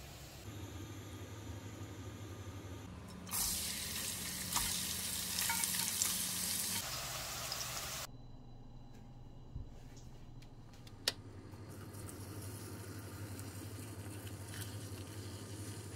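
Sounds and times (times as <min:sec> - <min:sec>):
vegetables sizzling in oil: 0:03.3 - 0:08.1.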